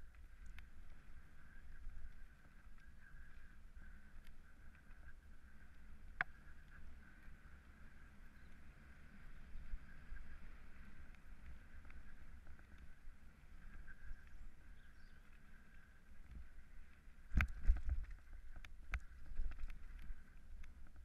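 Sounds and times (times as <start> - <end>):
bike tyres rumbling on trail: 0.0 - 21.0
wind on camera: 0.0 - 21.0.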